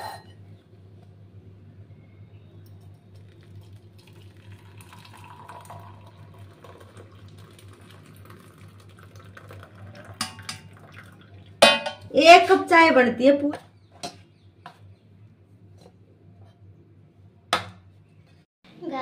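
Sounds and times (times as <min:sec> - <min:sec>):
liquid trickling into cup: 0:02.9 - 0:11.6.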